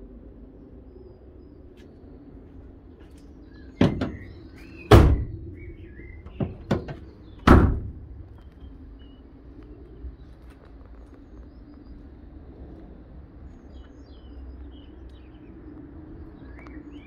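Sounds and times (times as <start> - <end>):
birds chirping: 0.4 - 17.0
light knocks on van doors: 3.8 - 5.4, 6.2 - 8.4
van door slamming: 3.8 - 8.5.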